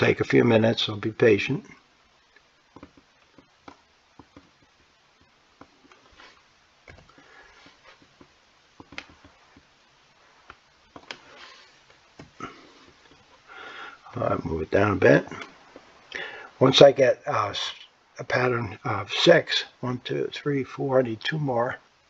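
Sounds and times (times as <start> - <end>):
mouse and keyboard clicks: 8.8 - 9.3.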